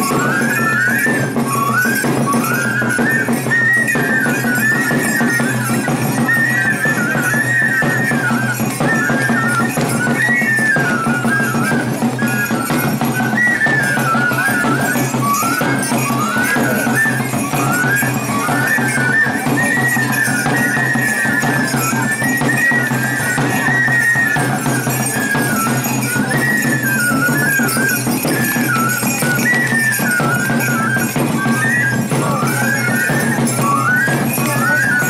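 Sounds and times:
flute folk dance melody: 0.0s - 35.0s.

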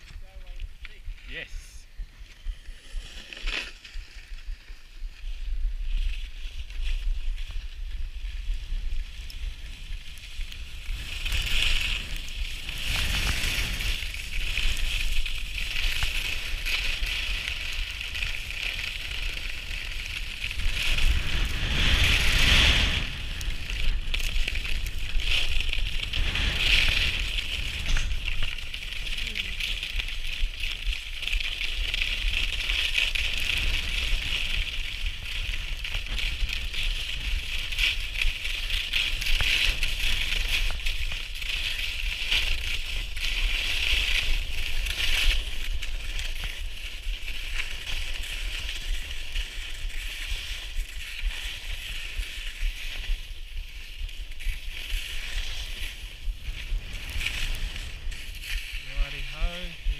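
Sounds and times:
skis sliding over snow: 0.0s - 59.9s
wind buffeting microphone: 18.9s - 29.9s.

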